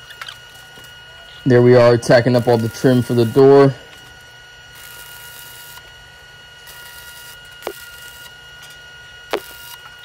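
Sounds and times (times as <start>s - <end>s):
steady high whine: 0.0s - 10.0s
stick welder crackling hiss: 6.6s - 8.3s, 9.3s - 9.9s.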